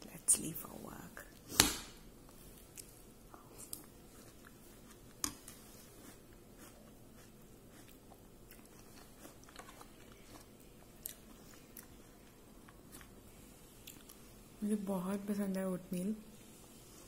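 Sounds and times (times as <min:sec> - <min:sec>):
person chewing quietly: 0:02.2 - 0:14.4.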